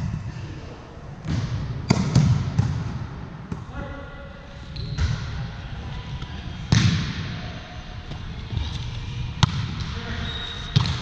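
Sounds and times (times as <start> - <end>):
volleyball hits ringing in gym: 1.2 - 3.8, 4.8 - 8.7, 9.3 - 11.0.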